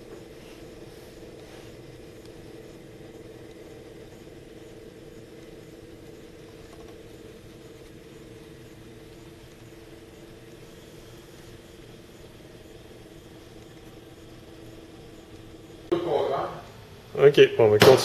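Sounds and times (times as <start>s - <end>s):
air jet hiss: 0.0s - 2.1s
gyroscope rotor humming: 0.0s - 17.4s.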